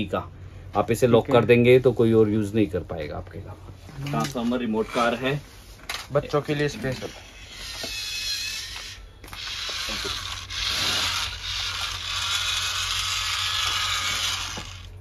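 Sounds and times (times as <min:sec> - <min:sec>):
small electric motors whirring: 0:06.5 - 0:15.0.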